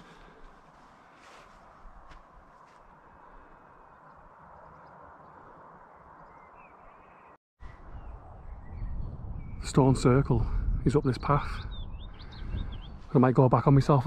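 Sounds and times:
bird chirps: 0:03.7 - 0:09.7, 0:11.2 - 0:13.2
wind buffeting microphone: 0:07.6 - 0:14.0
wind noise: 0:07.6 - 0:14.0.

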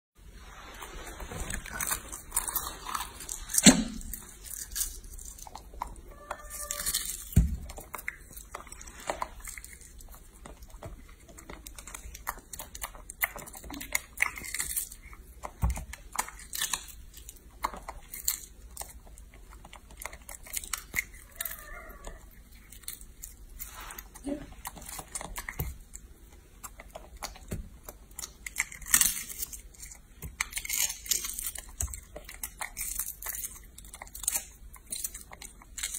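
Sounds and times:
monkey chewing: 0:00.8 - 0:35.9.

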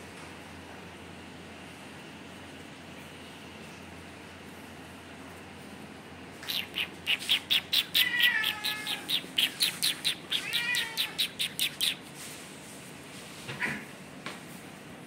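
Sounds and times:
high-pitched animal chirps: 0:06.4 - 0:12.0
animal falling cries: 0:08.0 - 0:09.1, 0:10.3 - 0:11.2.

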